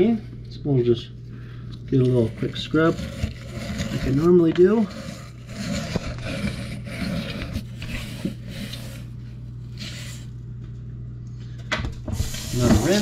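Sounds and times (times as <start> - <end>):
steady low hum: 0.0 - 13.0
scrubbing inside drain: 1.9 - 10.3, 12.1 - 13.0.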